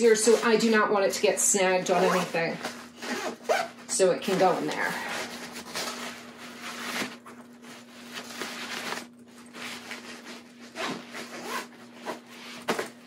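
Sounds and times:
fabric and clothes rustling: 0.0 - 13.0
zipper zipping: 1.9 - 3.8, 9.6 - 12.8.

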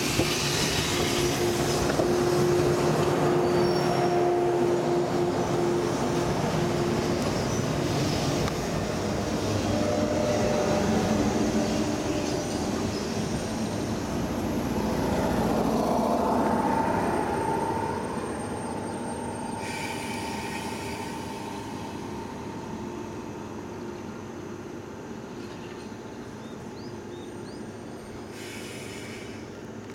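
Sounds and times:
train wheels and brakes squealing: 0.0 - 8.4, 15.8 - 23.7, 28.1 - 29.6
standing train humming: 0.0 - 29.9.

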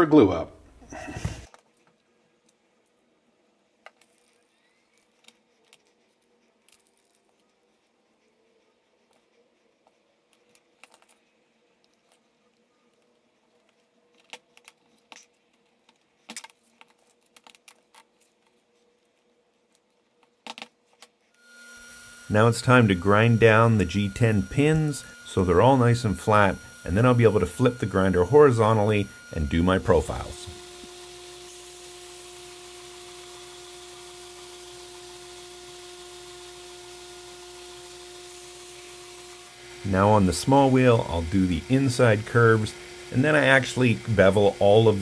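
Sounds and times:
belt grinder hissing and whining: 21.4 - 45.0.

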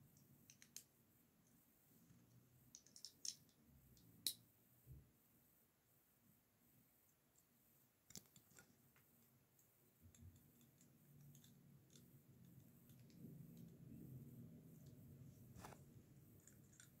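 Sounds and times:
faint low hum: 0.0 - 17.0
plastic bricks clicking together: 2.7 - 3.6.

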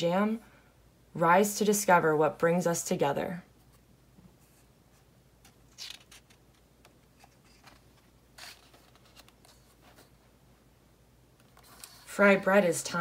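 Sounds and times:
book page turning: 5.4 - 10.2, 11.4 - 12.1.

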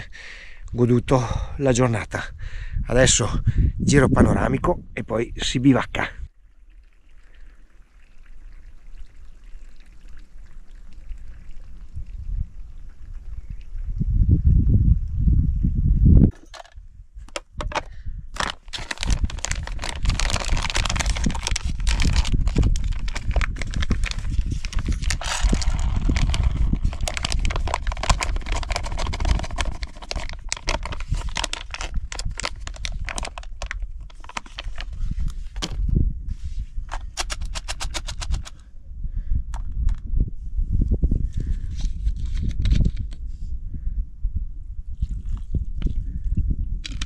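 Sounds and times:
wind buffeting microphone: 0.0 - 47.0
foil pouch crinkling: 17.3 - 35.8, 41.7 - 43.2
dry food pouring into a pot: 18.4 - 34.8.

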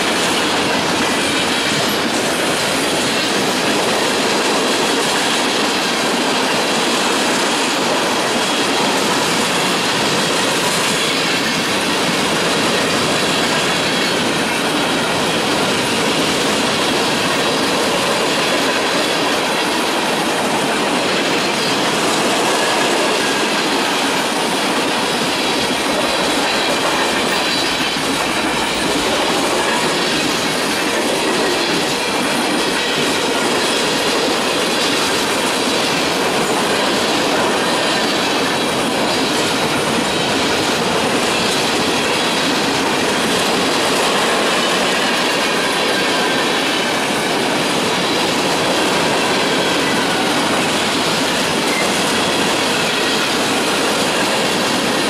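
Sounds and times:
freight train wheels clattering: 0.0 - 55.0.

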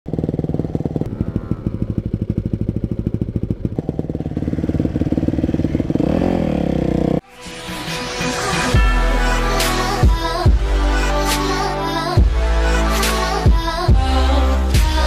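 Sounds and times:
dirt bike engine idling and revving: 0.1 - 7.2.

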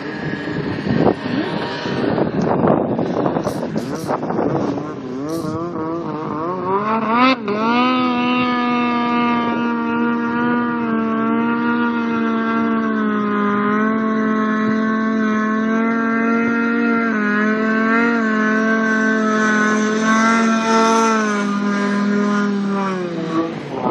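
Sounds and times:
snowmobile engine at high revs: 0.0 - 23.9.

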